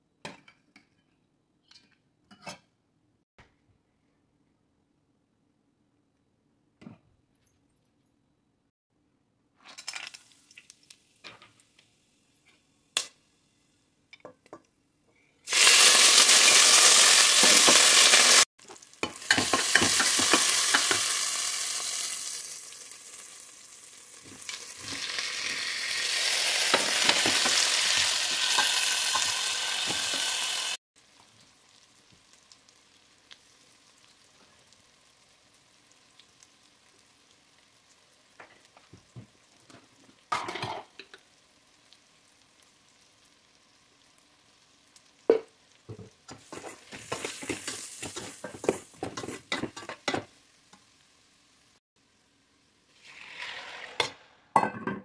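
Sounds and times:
meat sizzling in hot oil: 15.5s - 51.8s
spoon scraping a pot: 46.3s - 50.3s.

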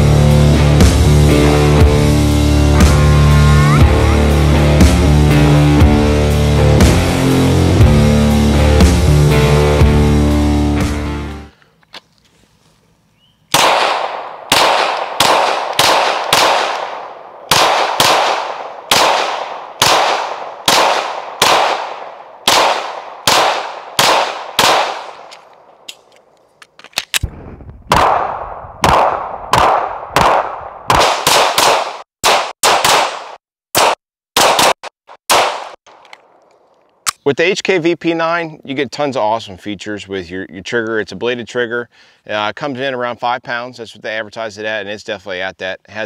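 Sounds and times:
pistol shots with echo: 13.5s - 25.3s, 27.9s - 35.8s.

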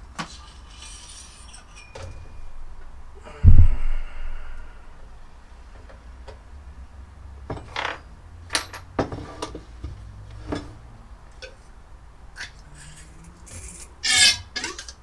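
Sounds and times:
metal tools clinking on workbench: 0.4s - 2.4s, 7.5s - 9.0s.

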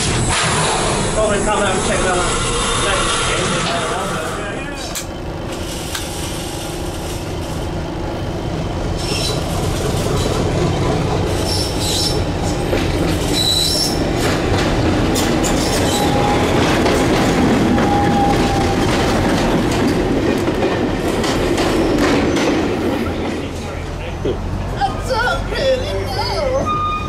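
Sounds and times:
coach wheels clattering over rail joints: 0.0s - 27.0s
diesel locomotive passing: 0.0s - 27.0s
high wheel squeals: 11.4s - 12.3s, 13.2s - 14.1s, 15.4s - 16.6s, 17.7s - 18.8s, 26.1s - 27.0s.

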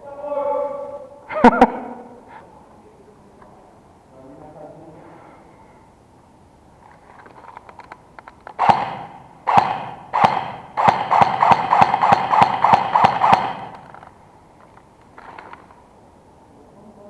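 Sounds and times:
airsoft gun shots echoing: 8.6s - 14.0s.

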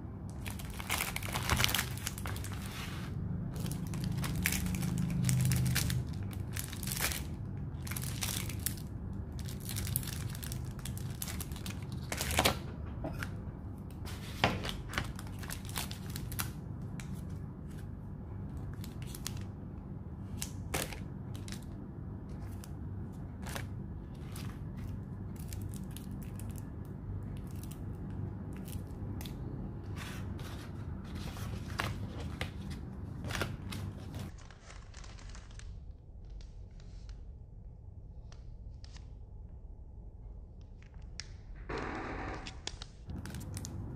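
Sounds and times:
steady low hum: 0.0s - 43.9s
plastic packaging crinkling: 0.3s - 12.6s, 14.6s - 17.2s, 18.7s - 19.5s, 30.3s - 36.4s, 43.1s - 43.9s.

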